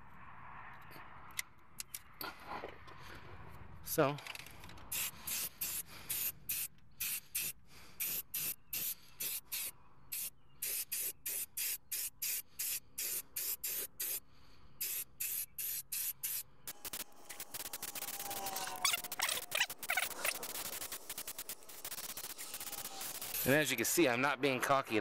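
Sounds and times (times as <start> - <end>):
spray paint can hissing in bursts: 4.9 - 23.7.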